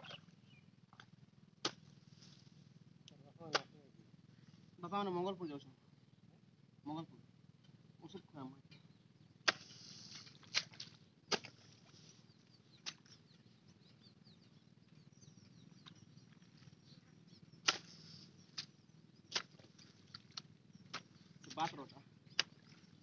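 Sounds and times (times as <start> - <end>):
hoe striking wet mud: 1.6 - 1.9, 3.5 - 3.7, 9.4 - 11.7, 12.8 - 13.1, 17.6 - 18.7, 19.3 - 22.8.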